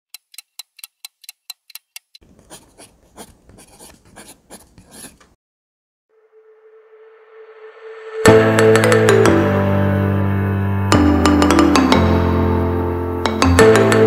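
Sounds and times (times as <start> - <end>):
pen scribbling on paper: 2.2 - 5.3
steady tone and rising swell: 6.1 - 8.3.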